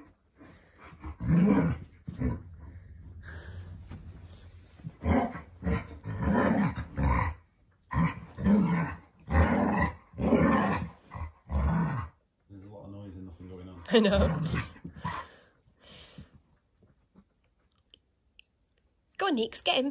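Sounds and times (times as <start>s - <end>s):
dog growling: 0.8s - 3.7s, 4.9s - 12.2s, 13.9s - 15.2s.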